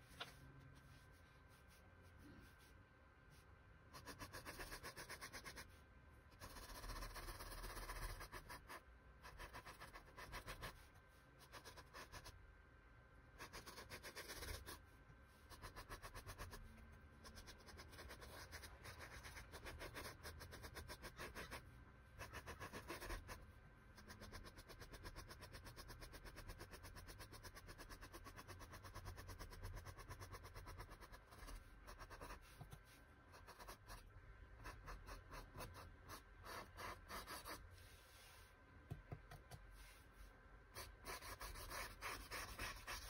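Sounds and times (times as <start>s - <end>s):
paintbrush scratching on canvas: 40.8s - 43.0s.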